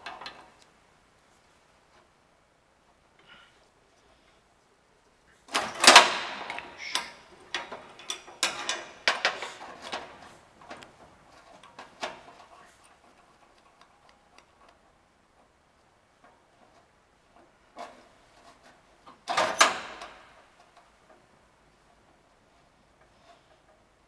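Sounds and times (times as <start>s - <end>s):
wrenches clinking on metal nut: 5.6s - 9.6s.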